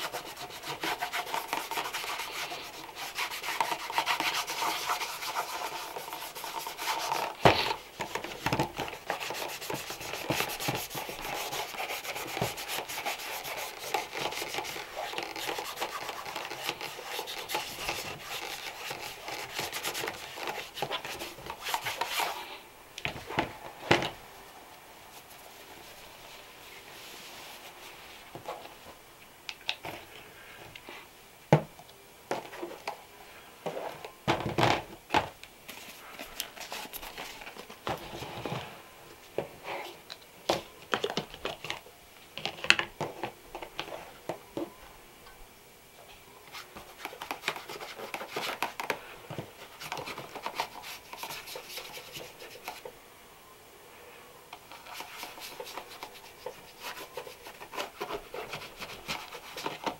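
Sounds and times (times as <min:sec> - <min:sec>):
scratchy rubbing on leather shoes: 0:00.0 - 0:07.8, 0:08.9 - 0:22.4, 0:54.8 - 0:59.9.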